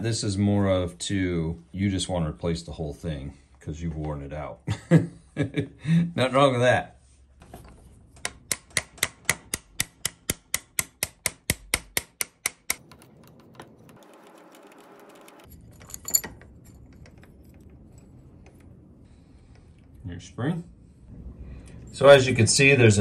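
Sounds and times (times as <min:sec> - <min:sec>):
regular metal clicks: 0:08.2 - 0:20.0.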